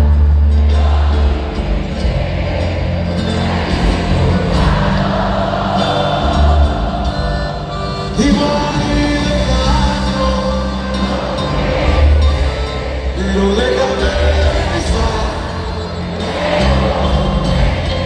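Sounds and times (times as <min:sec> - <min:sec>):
brass band music: 0:00.0 - 0:18.0
man singing into microphone: 0:08.1 - 0:12.0, 0:13.1 - 0:17.5.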